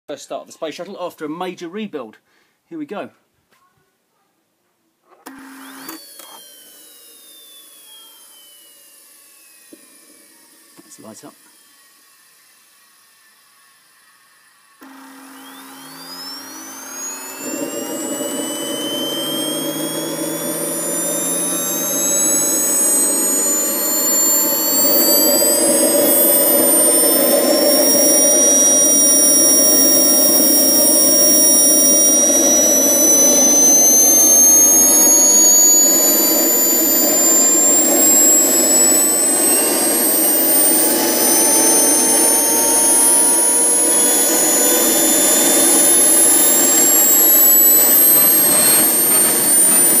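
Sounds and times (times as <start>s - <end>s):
jet turbine whine: 5.4s - 50.0s
rushing combustion noise: 15.5s - 50.0s.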